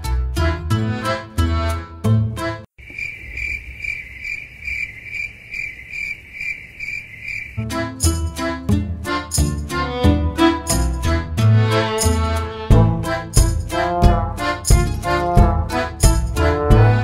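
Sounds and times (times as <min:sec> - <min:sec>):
background music: 0:00.0 - 0:02.7, 0:07.6 - 0:17.0
cricket-like chirping tone: 0:02.8 - 0:07.6.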